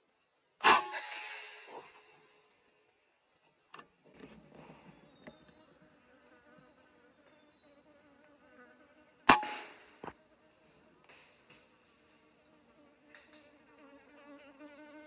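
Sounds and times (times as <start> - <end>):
insects buzzing: 0.0 - 15.0
air rifle shot: 0.6 - 2.1, 9.3 - 10.1.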